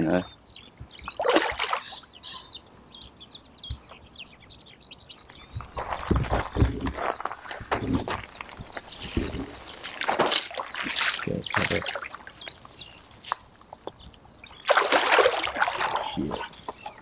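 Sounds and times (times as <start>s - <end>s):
fish splashing at water surface: 1.2s - 1.8s, 14.6s - 16.2s.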